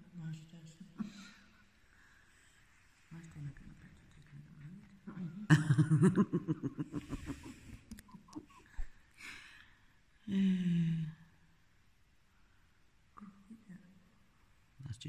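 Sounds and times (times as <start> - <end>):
person laughing breathily: 5.6 - 9.4.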